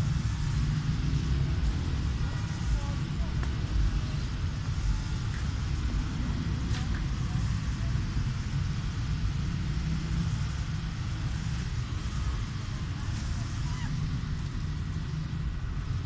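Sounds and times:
low urban rumble: 0.0 - 16.0.

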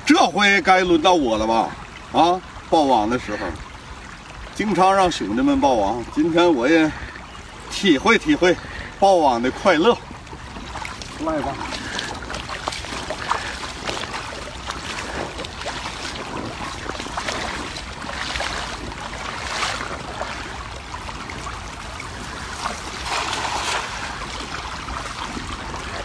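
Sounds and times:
fishing net hauled through water: 0.0 - 26.0
river water sloshing: 0.0 - 26.0
steady rush of current: 21.4 - 24.2.

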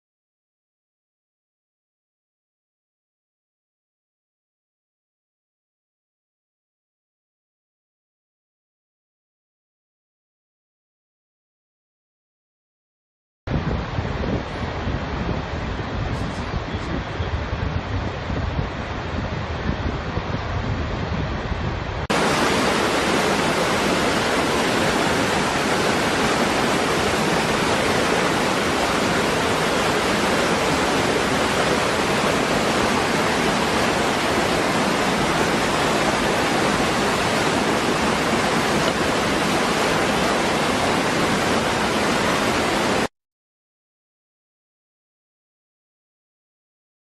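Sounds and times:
waterfall pouring over rocks: 22.1 - 43.1.

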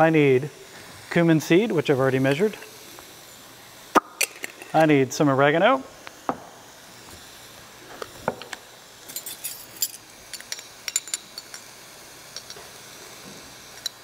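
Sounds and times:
spice jars and spoons clinking: 4.2 - 4.9, 9.1 - 11.7, 12.3 - 12.7.

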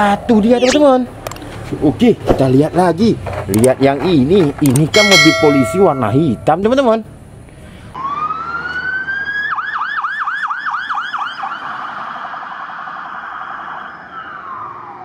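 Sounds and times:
police car siren: 8.0 - 15.0.

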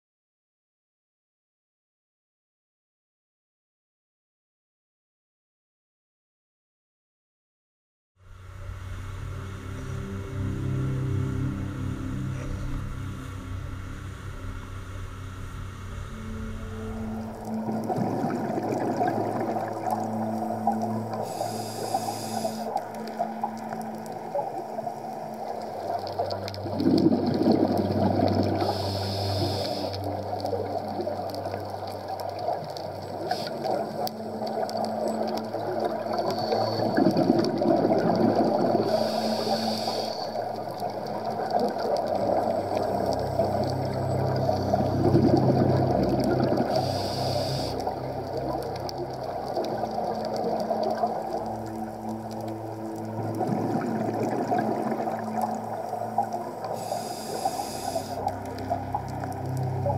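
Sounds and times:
steady low hum: 8.2 - 50.2
exhaled bubbles rushing: 15.8 - 59.9
regulator hissing inhale: 21.2 - 23.2, 28.5 - 30.2, 33.2 - 34.0, 36.1 - 37.3, 38.7 - 40.6, 46.6 - 48.0, 56.6 - 58.4.

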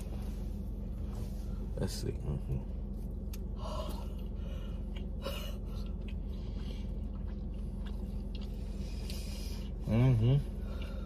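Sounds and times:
low hum inside a car: 0.0 - 11.0
faint chewing: 2.5 - 9.8.

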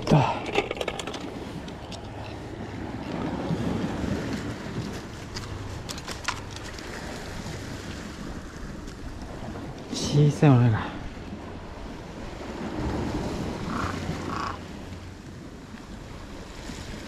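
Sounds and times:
surf washing against rocks: 0.0 - 17.0
wind on microphone: 10.9 - 17.0.

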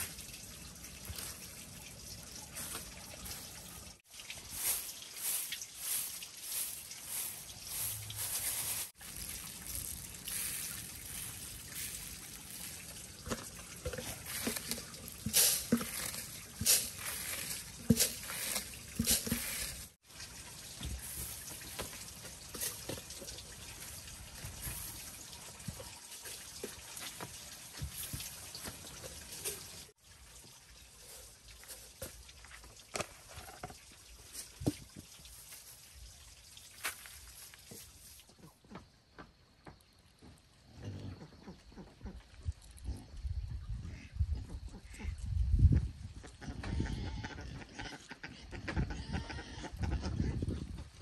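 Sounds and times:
grain rustling on bamboo tray: 4.5 - 20.0.

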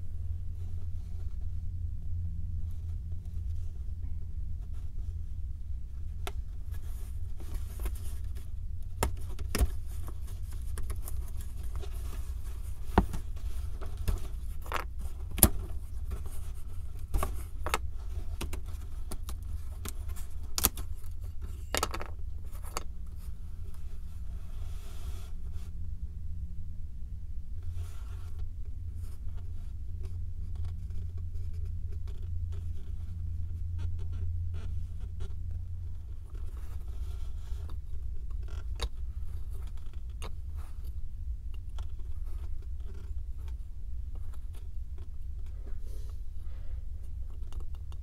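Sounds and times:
soft scraping: 0.0 - 26.0, 41.8 - 47.4
steady low hum: 0.0 - 48.0.

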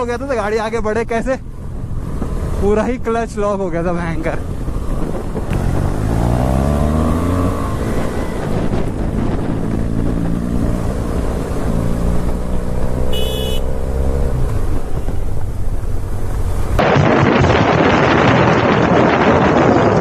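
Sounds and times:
wind rushing over microphone: 1.5 - 12.9, 14.3 - 20.0.

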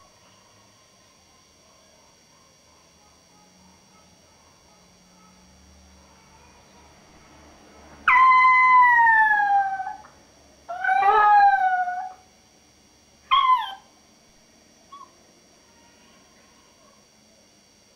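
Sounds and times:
puppy howling: 8.0 - 10.1, 10.7 - 12.2, 13.3 - 13.9.

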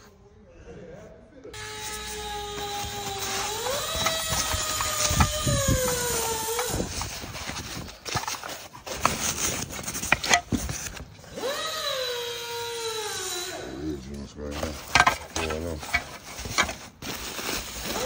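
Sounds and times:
packing paper crinkling: 1.9 - 11.3, 14.4 - 18.0.

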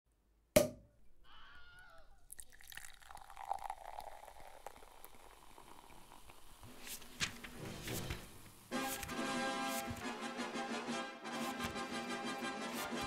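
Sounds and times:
liquid dripping and pouring: 2.2 - 7.4.

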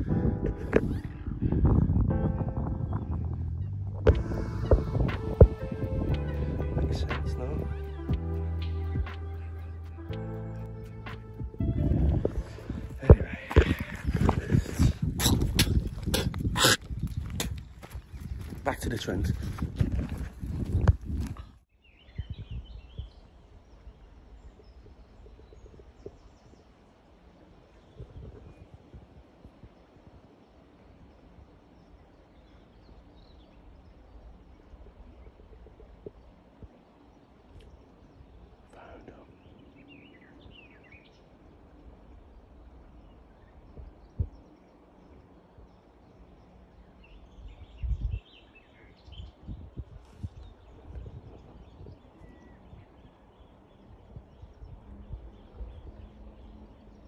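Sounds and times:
low thumps: 0.0 - 17.6
low rumble: 0.0 - 18.7
footsteps on dry ground: 4.1 - 8.3, 11.1 - 21.6.

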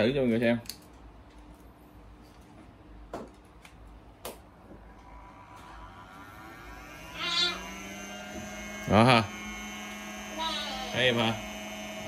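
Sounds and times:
blower fan motor whine: 3.7 - 12.0.

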